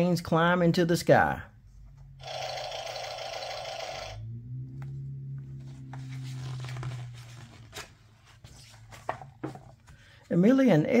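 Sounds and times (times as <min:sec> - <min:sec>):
toy airplane sound effect: 0:02.2 - 0:04.2.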